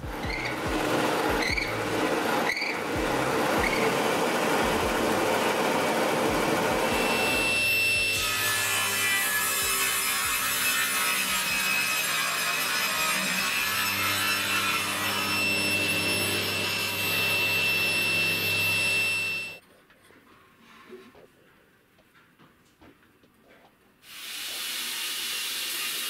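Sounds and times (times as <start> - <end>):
drill press cutting wood: 0.0 - 19.6
table saw whining: 0.0 - 19.6.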